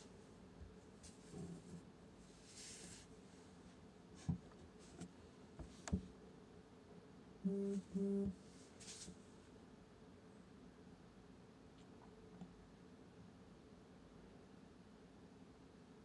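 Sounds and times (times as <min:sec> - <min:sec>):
low buzzes: 0:07.4 - 0:08.4.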